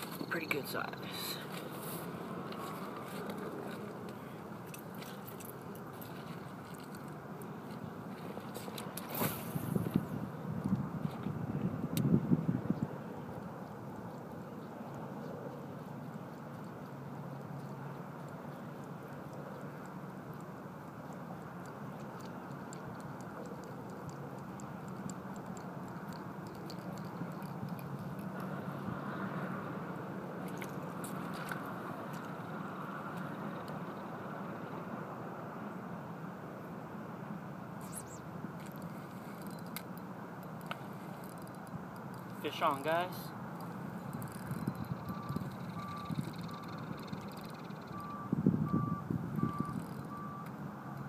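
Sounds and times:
fishing reel clicking: 0:41.2 - 0:42.3, 0:44.1 - 0:48.0.

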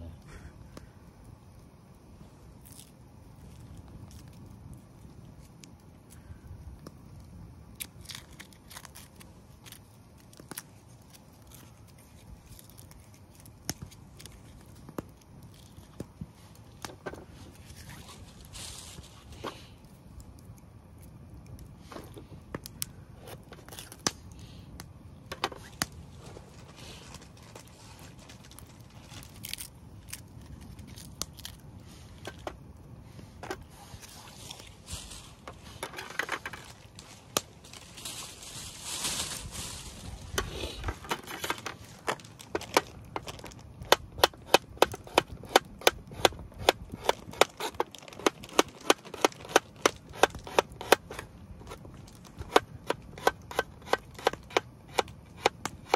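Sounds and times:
rustling noise: 0:10.6 - 0:19.9, 0:25.3 - 0:43.7.

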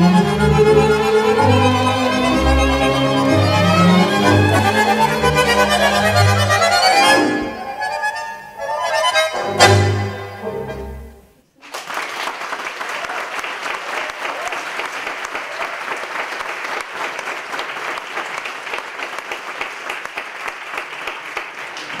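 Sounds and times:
audience applauding: 0:11.6 - 0:22.0.

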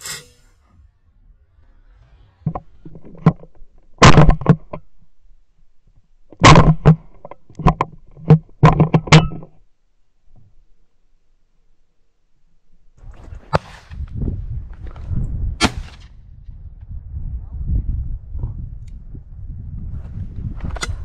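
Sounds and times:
knocks and thumps of gun handling: 0:02.5 - 0:04.9, 0:06.3 - 0:09.6.

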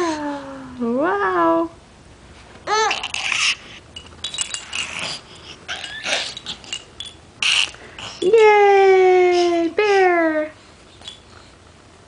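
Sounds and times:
baby squealing: 0:02.7 - 0:03.7, 0:05.7 - 0:06.4, 0:07.4 - 0:07.8.

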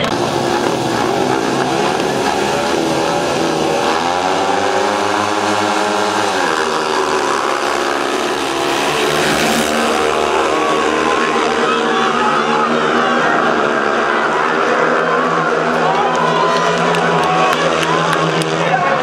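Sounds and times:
motorcycle engines racing: 0:00.0 - 0:19.0.

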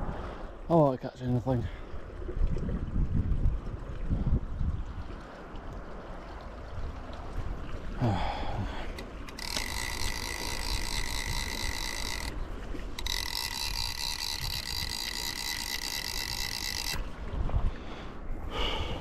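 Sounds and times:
fly reel ratchet buzzing: 0:09.3 - 0:17.1.

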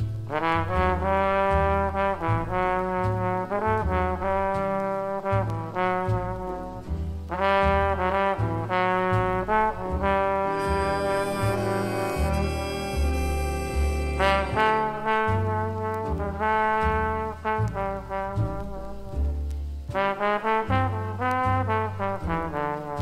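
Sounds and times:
bass line: 0:00.0 - 0:22.6
brass section playing chords: 0:07.4 - 0:18.9.

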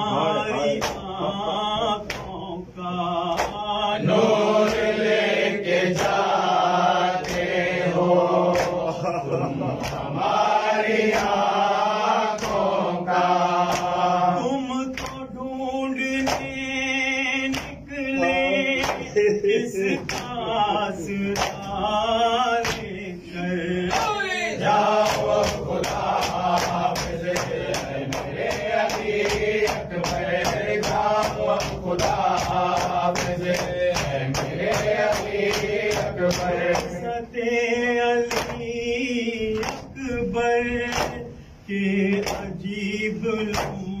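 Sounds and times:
men chanting: 0:00.0 - 0:44.0
hands slapping chests: 0:00.8 - 0:01.1, 0:05.9 - 0:06.3, 0:07.2 - 0:09.0, 0:09.7 - 0:10.3, 0:13.7 - 0:14.0, 0:14.9 - 0:15.2, 0:17.4 - 0:20.4, 0:21.2 - 0:21.8, 0:22.6 - 0:22.9, 0:24.9 - 0:37.0, 0:38.3 - 0:38.6, 0:39.6 - 0:39.9, 0:42.1 - 0:42.5, 0:43.5 - 0:43.8.

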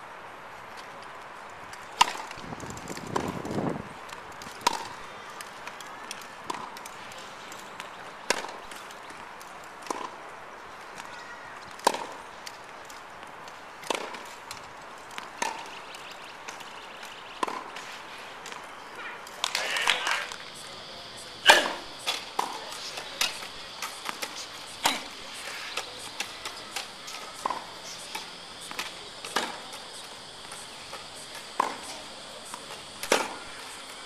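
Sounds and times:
tennis ball bouncing on hard court: 0:04.6 - 0:04.9, 0:17.4 - 0:17.7, 0:27.3 - 0:27.8, 0:31.3 - 0:33.4
tennis racket hitting ball: 0:04.6 - 0:05.0, 0:17.4 - 0:18.6, 0:21.4 - 0:33.5.

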